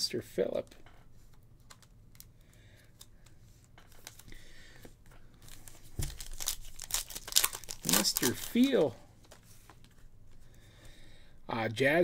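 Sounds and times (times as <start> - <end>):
trading cards shuffling: 0.9 - 10.4.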